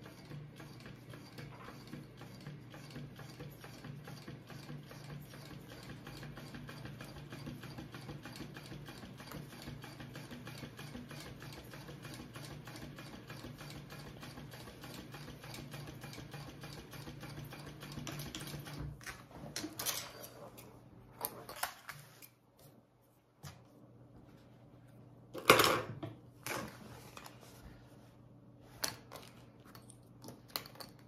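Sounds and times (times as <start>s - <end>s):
sewing machine stitch ticks: 0.0s - 18.8s
sewing machine motor hum: 0.0s - 20.7s.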